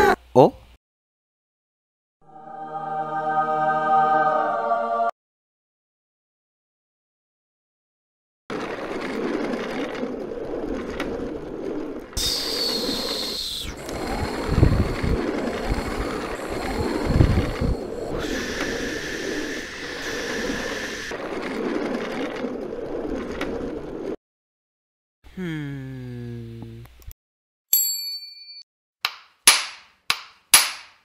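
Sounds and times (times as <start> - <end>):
cart wheels rattling over ground: 8.5 - 18.2
high steady squeal: 12.1 - 21.7.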